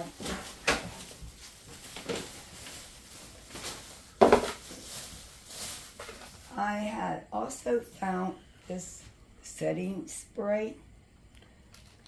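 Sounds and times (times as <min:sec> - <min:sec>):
plastic bag rustling: 0:00.0 - 0:07.0.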